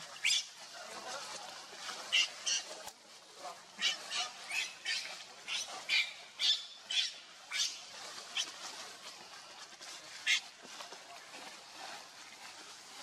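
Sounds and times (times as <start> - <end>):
macaque high squeaks: 3.8 - 7.7.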